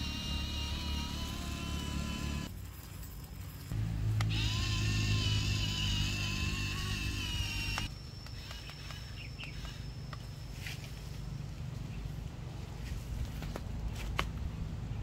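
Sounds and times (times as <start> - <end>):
small electric motor whining: 0.0 - 2.5, 3.7 - 10.4.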